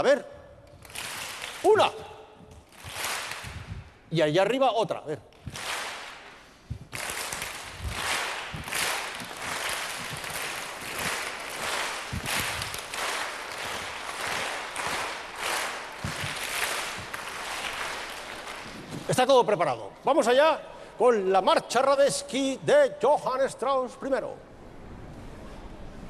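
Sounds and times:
children clapping together: 0.8 - 1.8, 2.6 - 3.8, 5.3 - 19.1.

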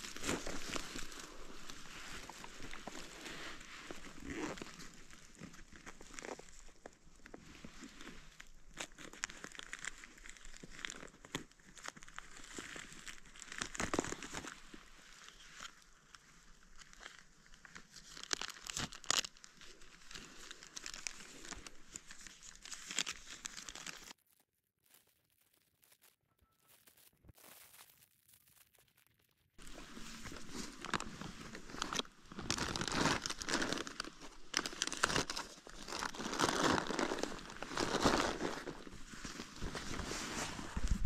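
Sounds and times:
plastic bag crinkling: 18.1 - 41.0.

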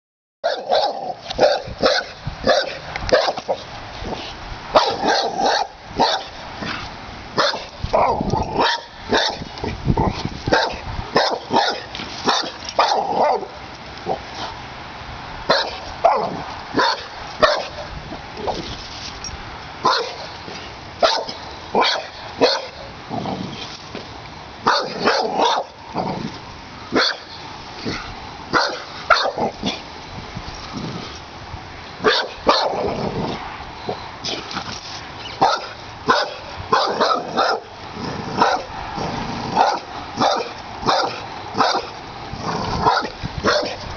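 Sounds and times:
dog barking: 0.4 - 3.6, 4.8 - 6.4, 7.4 - 9.4, 10.5 - 13.6, 15.5 - 17.8, 19.8 - 20.2, 21.0 - 22.8, 24.7 - 25.7, 27.0 - 27.3, 28.5 - 29.4, 32.0 - 32.8, 35.4 - 37.7, 38.4 - 38.7, 39.6 - 41.9, 42.8 - 43.8.

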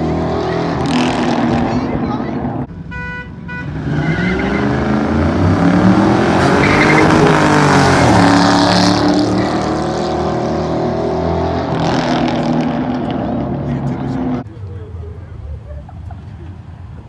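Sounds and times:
car engines revving past: 0.0 - 15.4
tire squeal: 3.6 - 5.0, 6.4 - 9.6.

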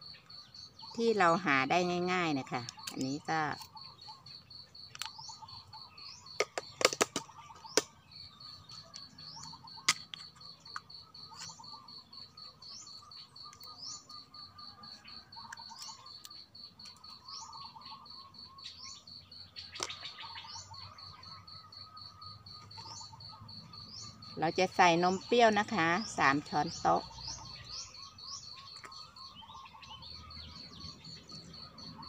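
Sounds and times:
bird chirps: 0.0 - 32.0
insect trilling: 0.0 - 32.0.

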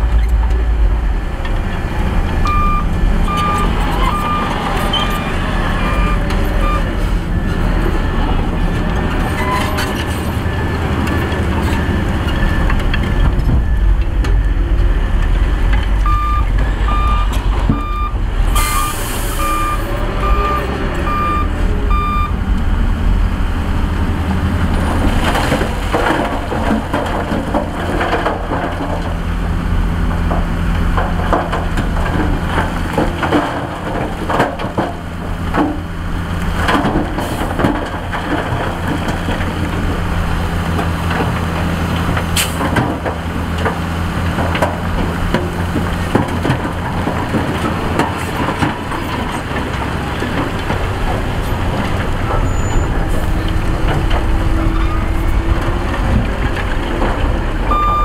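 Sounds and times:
heavy diesel engine running: 0.0 - 58.0
rocks scraping and clattering: 24.8 - 29.2.

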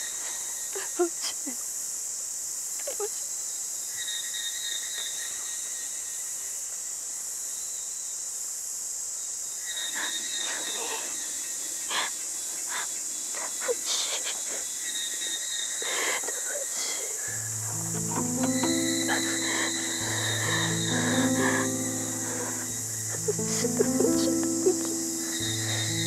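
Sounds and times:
crickets and insects chirping: 7.0 - 26.0.

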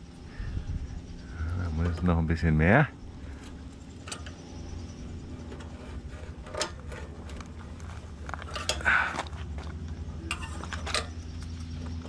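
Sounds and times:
steady low rumble: 0.0 - 12.0
metallic clicks of steel tubes: 3.4 - 7.6, 8.3 - 9.0.

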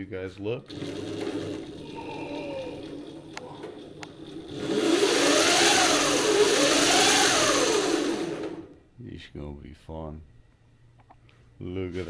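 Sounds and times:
electric motor whirring: 0.7 - 8.7.

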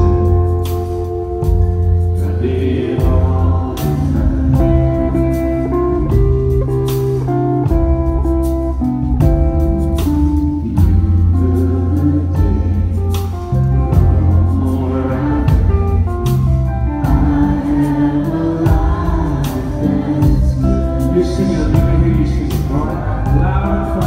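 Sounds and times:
electric guitar melody: 0.0 - 24.0
live band music: 0.0 - 24.0
people singing: 2.0 - 6.3, 13.7 - 24.0.

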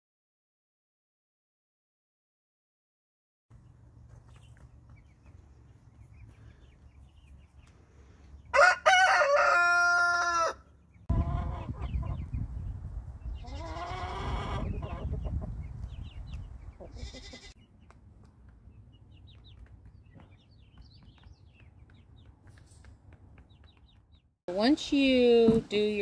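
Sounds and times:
chickens clucking: 3.6 - 8.7, 9.4 - 24.2
rooster crowing: 8.5 - 10.7.

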